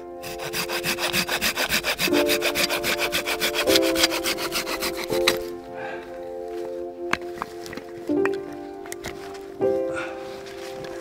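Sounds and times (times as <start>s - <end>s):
background music with sustained chords: 0.0s - 11.0s
hand saw cutting branch: 0.2s - 5.5s.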